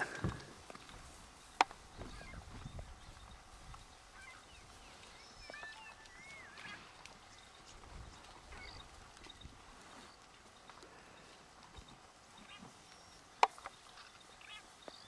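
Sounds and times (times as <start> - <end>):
faint bird whistles: 5.0 - 6.8.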